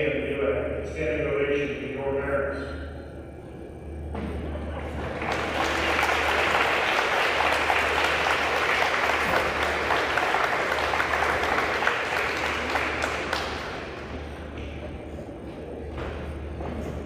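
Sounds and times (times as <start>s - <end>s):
audience applauding: 4.8s - 14.4s.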